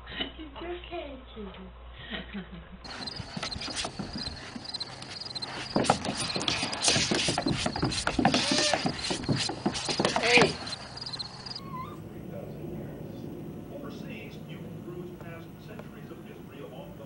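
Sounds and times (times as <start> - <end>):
faint crickets chirping: 2.8 - 17.0
claws tapping on plastic: 2.9 - 11.6.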